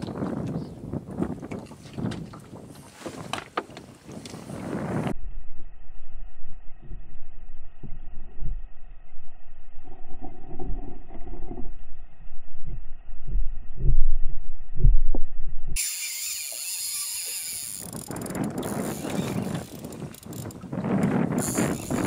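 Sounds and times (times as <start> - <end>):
underwater low rumble: 4.7 - 15.8
wind and water rushing: 15.8 - 22.0.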